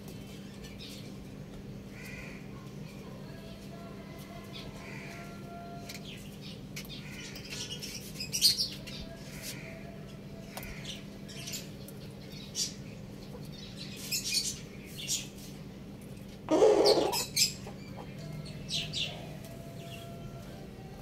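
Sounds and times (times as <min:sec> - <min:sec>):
birds chirping: 0:16.5 - 0:20.9.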